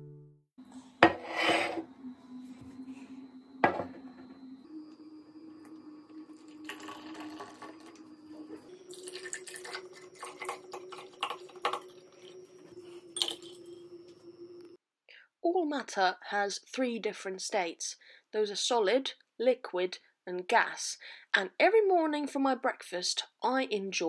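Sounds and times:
ceramic plate knocking on table: 3.6s - 4.0s
water pouring into mug: 5.7s - 13.8s.

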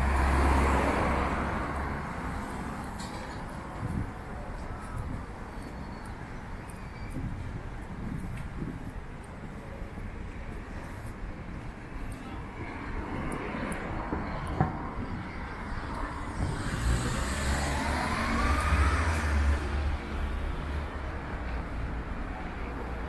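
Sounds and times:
steady traffic noise: 0.0s - 23.0s
car passing: 15.8s - 21.1s.

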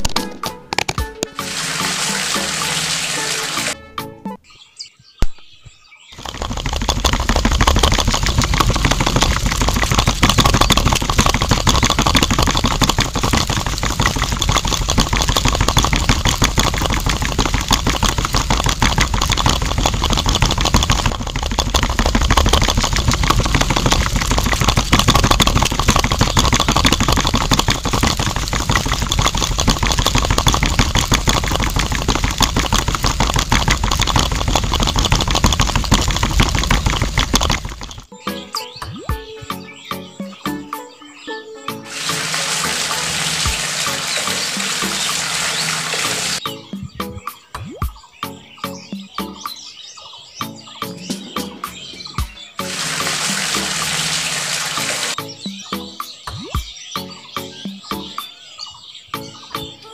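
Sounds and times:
mixer drum rattling: 6.2s - 38.1s, 41.9s - 46.4s, 51.1s - 55.2s.

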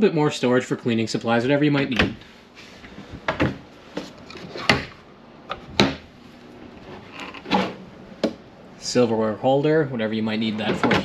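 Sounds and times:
drawer pulled open: 3.4s - 6.0s, 6.6s - 7.8s.

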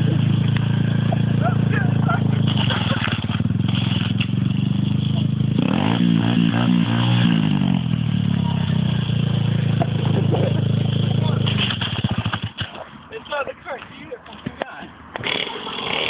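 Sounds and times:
small motorcycle engine idling and revving: 0.0s - 12.9s, 15.1s - 16.0s.

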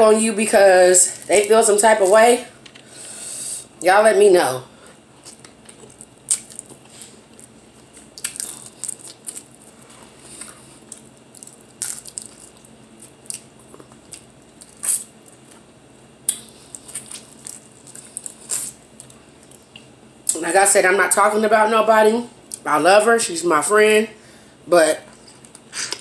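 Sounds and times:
crab shells cracking: 5.3s - 9.6s, 10.9s - 15.4s.

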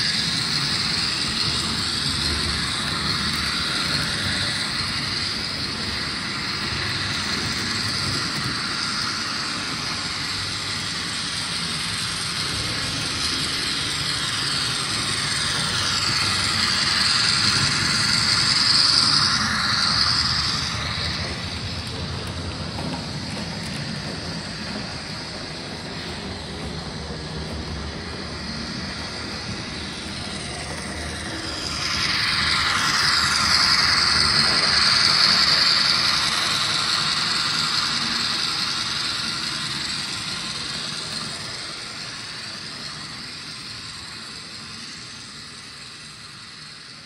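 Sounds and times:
model train motors whirring: 0.0s - 47.0s.

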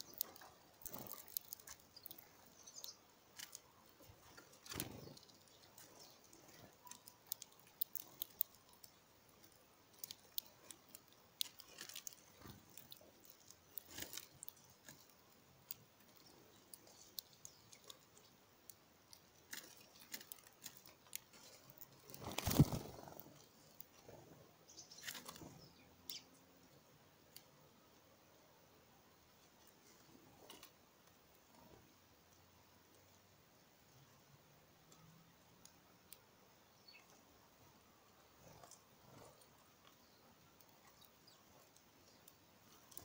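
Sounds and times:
beaks tapping on seed: 0.0s - 26.4s.

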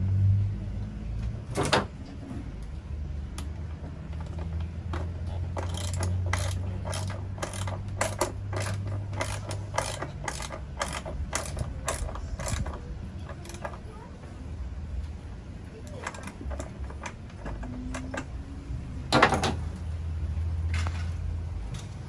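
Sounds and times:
ratchet wrench clicking: 4.2s - 13.8s, 16.0s - 18.4s.

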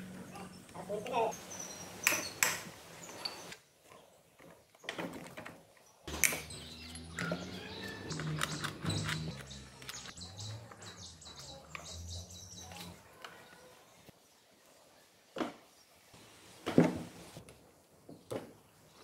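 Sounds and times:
birds chirping: 0.0s - 5.0s, 5.7s - 14.6s.

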